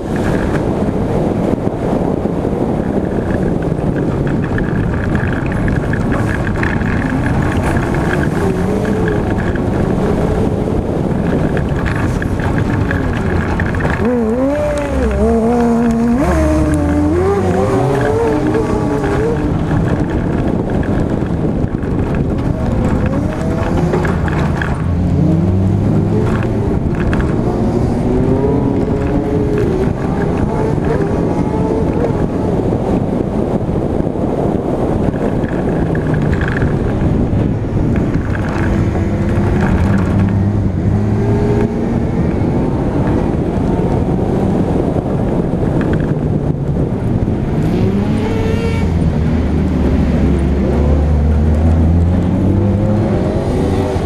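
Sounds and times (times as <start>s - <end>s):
tyre and wind noise: 0.0s - 54.0s
racing car engine revving: 4.8s - 32.8s, 47.2s - 54.0s.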